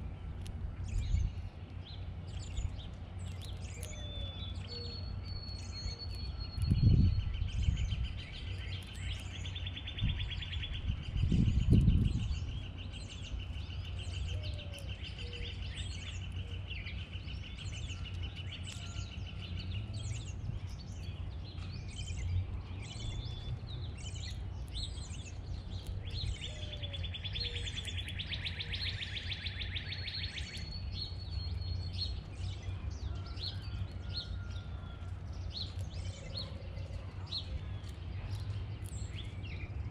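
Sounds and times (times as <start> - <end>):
songbirds chirping: 0.0 - 39.9
bird trill: 2.4 - 25.4, 26.0 - 39.7
low rumble: 10.0 - 14.6.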